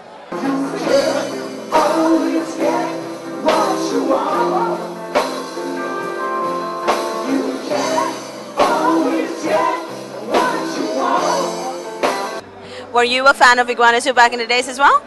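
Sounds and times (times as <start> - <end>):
man singing: 0.3 - 5.8, 7.1 - 12.1
live rock band playing: 0.3 - 12.6
accented band hits: 0.4 - 12.5.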